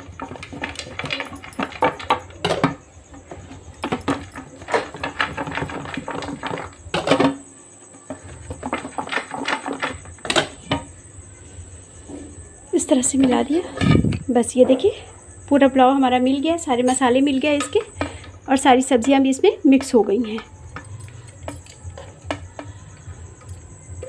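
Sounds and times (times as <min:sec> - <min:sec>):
metal pot and lid rattling: 0:00.0 - 0:07.4, 0:08.2 - 0:10.9.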